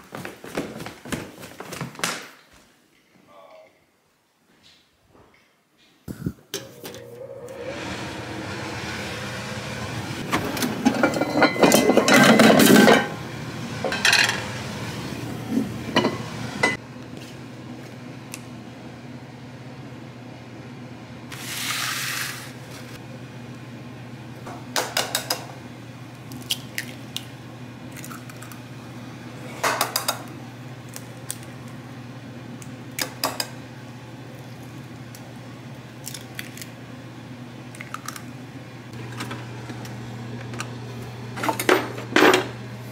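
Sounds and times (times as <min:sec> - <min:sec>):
frying pan and utensils clinking: 0:10.8 - 0:13.2, 0:13.8 - 0:14.5, 0:15.9 - 0:16.8.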